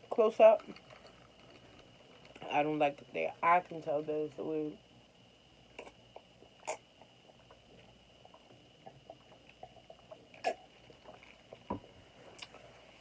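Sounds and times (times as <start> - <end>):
person sipping and swallowing: 5.8 - 12.8.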